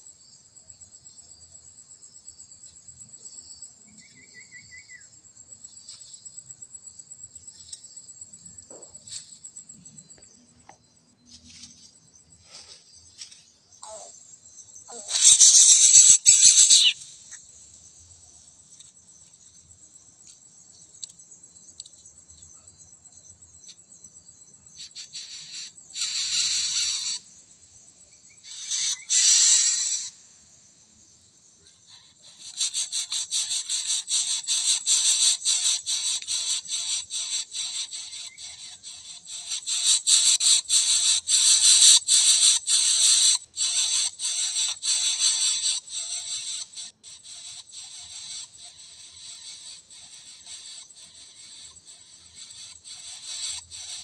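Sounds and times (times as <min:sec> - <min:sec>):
high insect whine: 0:00.0 - 0:54.0
nestlings raspy begging calls: 0:14.9 - 0:17.2, 0:24.9 - 0:27.2, 0:28.4 - 0:30.2, 0:31.9 - 0:54.0.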